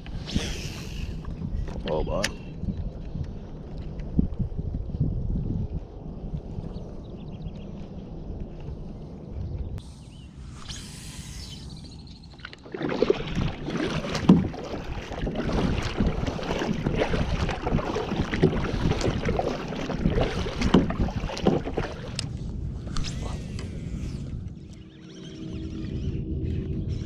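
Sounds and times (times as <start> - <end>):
paddle splashing in water: 12.3 - 22.4.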